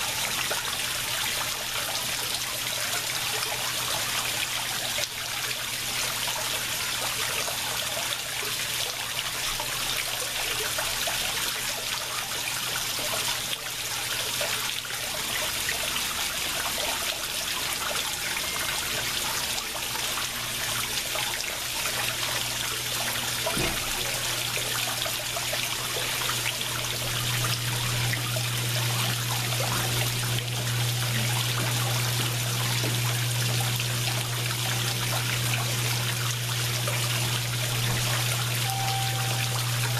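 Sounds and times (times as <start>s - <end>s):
water splashing into pond: 14.2s - 39.9s
low steady hum: 26.4s - 39.9s.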